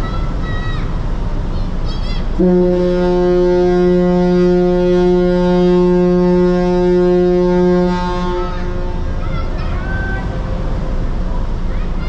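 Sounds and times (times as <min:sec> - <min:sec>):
ship horn long blast: 0:02.4 - 0:11.0.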